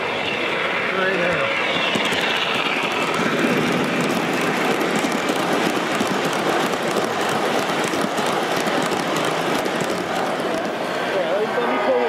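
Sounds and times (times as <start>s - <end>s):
model train rumble: 0.0s - 12.0s
wheels clattering over rails: 1.2s - 10.8s.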